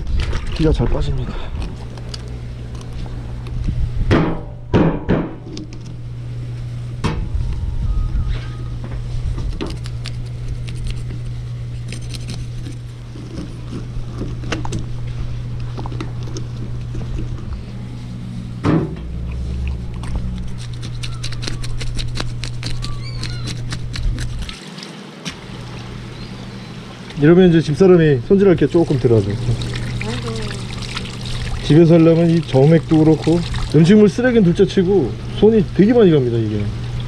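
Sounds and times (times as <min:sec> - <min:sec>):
low motor hum: 0:00.0 - 0:37.0.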